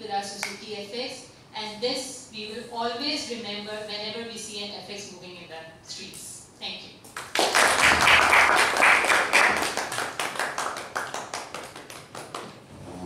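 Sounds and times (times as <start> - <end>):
audience applauding: 7.3 - 12.5.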